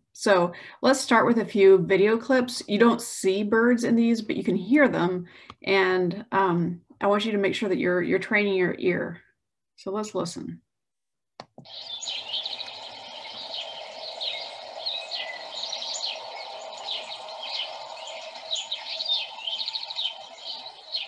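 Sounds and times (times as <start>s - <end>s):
sparrows chirping: 11.7s - 21.0s.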